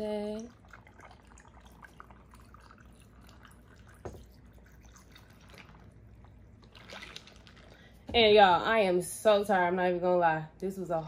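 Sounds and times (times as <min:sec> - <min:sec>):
juice trickling into glass: 0:00.2 - 0:08.1.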